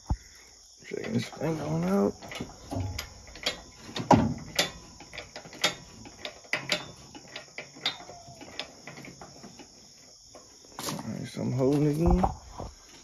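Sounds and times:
metallic clicks of engine hoist chain: 0.9 - 9.7.

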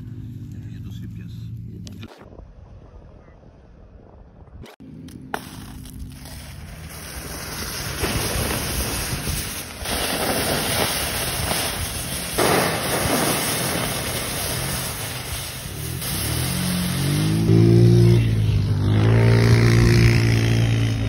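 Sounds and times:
water hissing on hot embers: 5.4 - 17.7.

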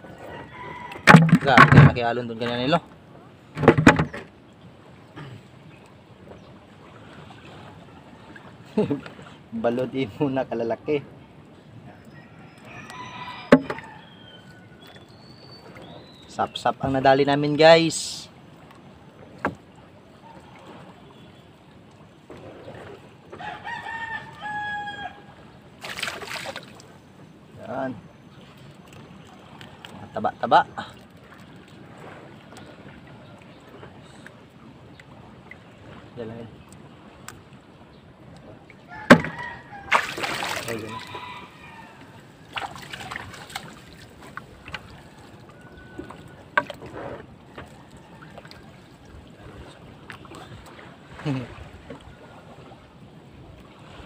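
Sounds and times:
wind and water hiss: 0.0 - 54.0
rooster crowing: 0.2 - 1.1, 12.1 - 14.7, 23.4 - 25.4, 38.9 - 42.4.

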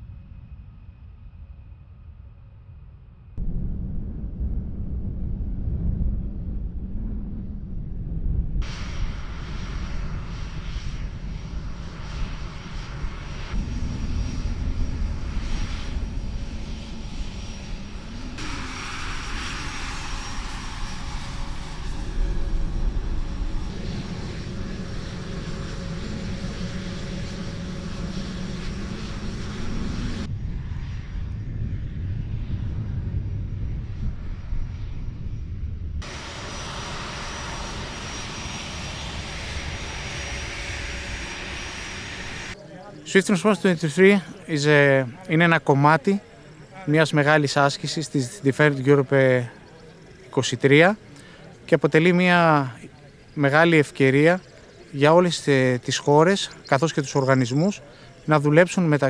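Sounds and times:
low engine rumble: 0.0 - 46.9
jet engine whine: 0.0 - 59.0.

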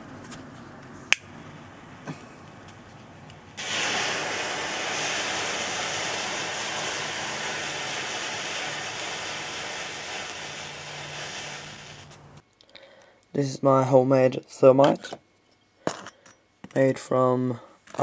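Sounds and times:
thermite burning with loud hiss: 3.6 - 12.4.

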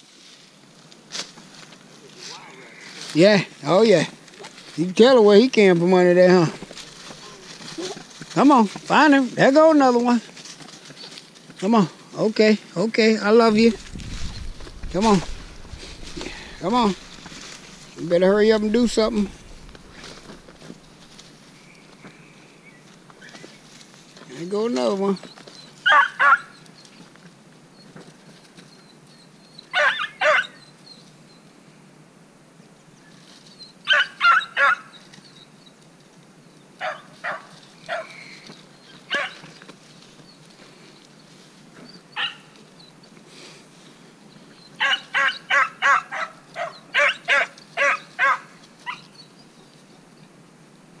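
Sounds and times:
dog baying: 39.1 - 39.4, 44.8 - 49.1.

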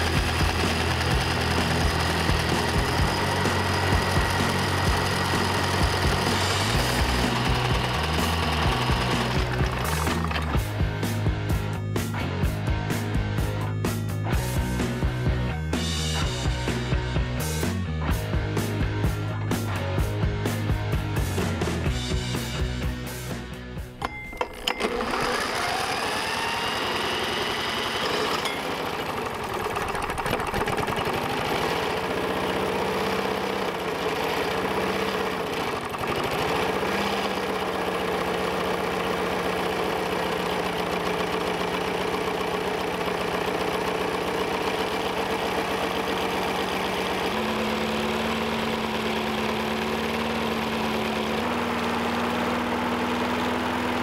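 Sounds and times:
small engine running: 0.0 - 23.4, 24.0 - 54.0
cordless drill whine: 24.0 - 31.0.

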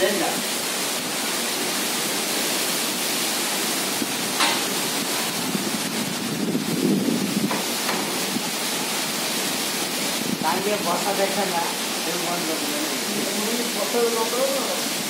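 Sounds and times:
storm wind gusting: 4.0 - 8.6
wind buffeting microphone: 5.0 - 8.6.

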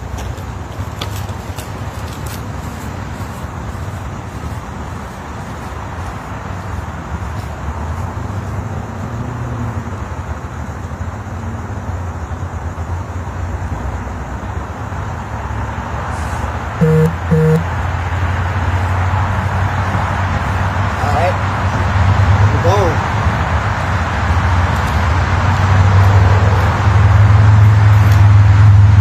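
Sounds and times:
road traffic hum: 0.0 - 29.0
short loud beeps: 16.8 - 17.7.

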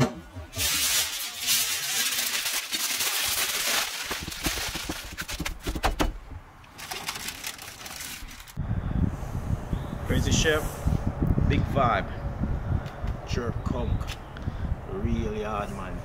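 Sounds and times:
aluminium foil crinkling: 0.6 - 5.8, 6.7 - 8.6.

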